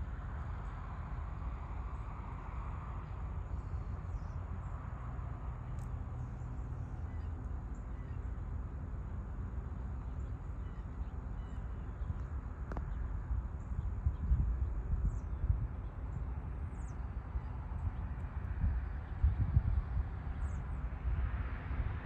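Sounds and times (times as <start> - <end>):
steady low rumble: 0.0 - 22.0
faint bird chirps: 10.0 - 12.2.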